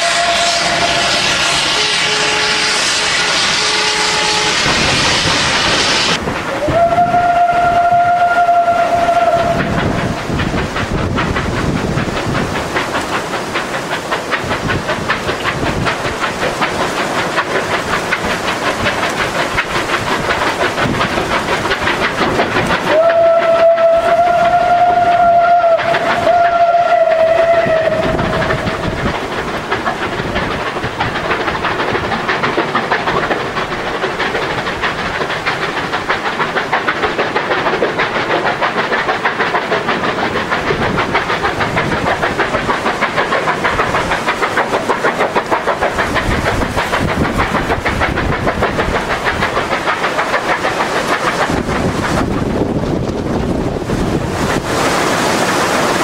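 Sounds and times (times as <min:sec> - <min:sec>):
steam whistles: 0:00.0 - 0:10.2, 0:22.9 - 0:29.0
steam hissing: 0:00.0 - 0:56.0
train running rhythmically: 0:00.0 - 0:56.0.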